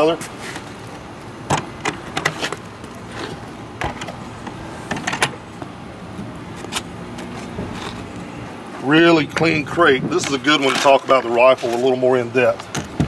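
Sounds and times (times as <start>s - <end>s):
metal latches clicking and clanking: 1.5s - 5.5s.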